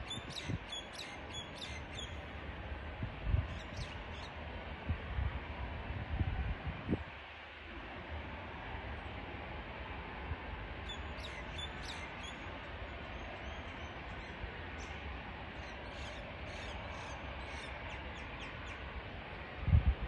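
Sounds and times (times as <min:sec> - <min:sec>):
steady low rumble: 0:07.7 - 0:20.0.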